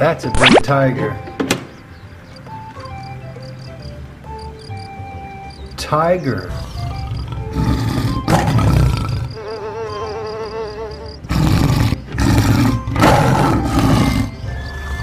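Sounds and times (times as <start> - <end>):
light background music: 0.0 - 15.0
tiger roaring: 6.5 - 9.4, 11.2 - 14.4.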